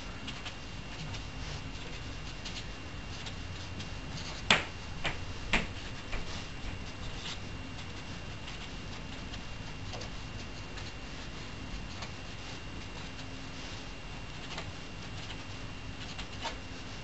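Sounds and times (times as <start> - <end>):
marker taps: 4.5 - 6.2.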